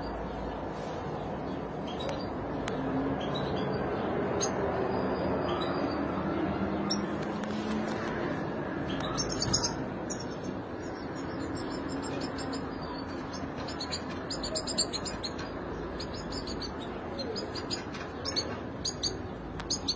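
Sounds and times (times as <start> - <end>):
finches chirping: 8.8 - 19.9.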